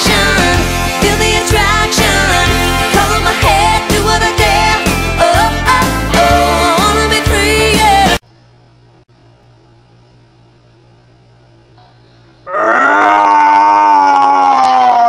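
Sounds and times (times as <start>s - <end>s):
pop music: 0.0s - 8.2s
girl's long vocal cry: 12.5s - 15.0s.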